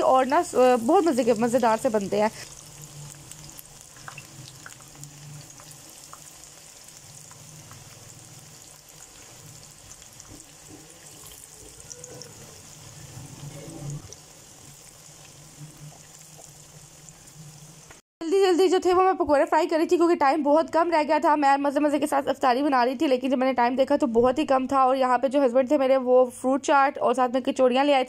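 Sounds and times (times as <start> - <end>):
food sizzling in hot oil: 0.0 - 18.0.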